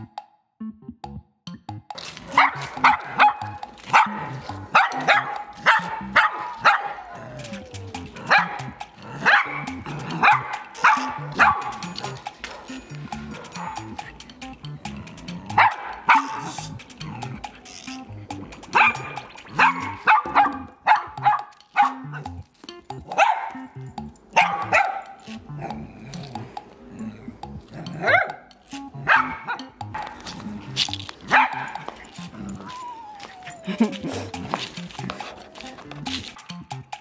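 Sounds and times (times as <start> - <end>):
background music: 0.0 - 37.0
small dog barking: 2.3 - 14.0, 15.6 - 16.6, 18.7 - 22.3, 23.1 - 23.7, 24.3 - 25.2, 28.0 - 28.4, 29.0 - 29.6, 31.2 - 34.0.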